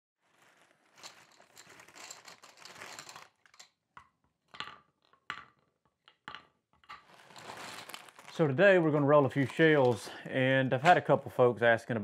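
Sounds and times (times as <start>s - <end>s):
plastic bag rustling: 0.2s - 3.6s, 7.0s - 11.2s.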